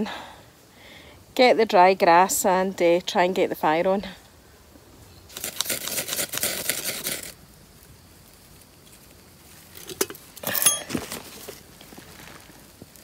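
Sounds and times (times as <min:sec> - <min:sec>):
dry grass rustling and crackling: 0:04.3 - 0:13.0.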